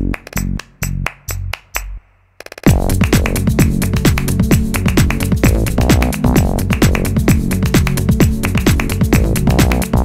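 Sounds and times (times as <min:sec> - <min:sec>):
fast kick drum beat: 0:02.6 - 0:10.0.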